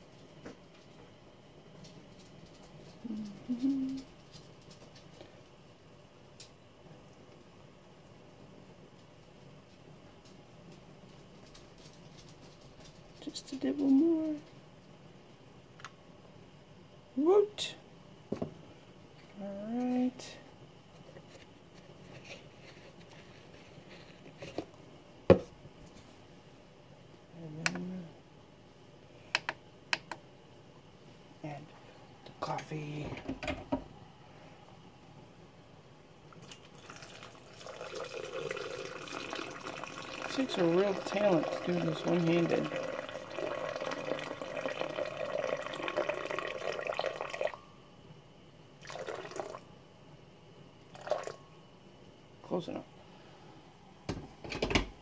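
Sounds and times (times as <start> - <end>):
liquid pouring into blender jar: 36.4 - 47.6, 48.8 - 49.6, 51.0 - 51.4.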